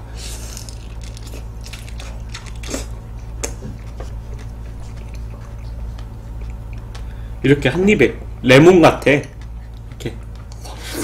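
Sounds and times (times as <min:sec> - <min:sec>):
steady low hum: 0:00.0 - 0:11.0
wet chewing mouth sounds: 0:00.2 - 0:07.2.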